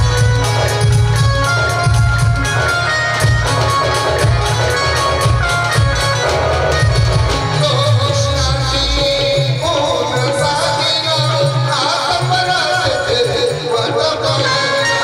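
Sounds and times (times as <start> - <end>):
drums keeping a beat: 0.0 - 15.0.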